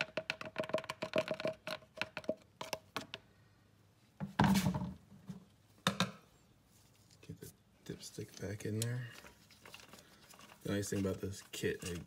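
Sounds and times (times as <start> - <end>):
plastic funnel clicks and knocks: 0.0 - 3.2, 5.8 - 6.2.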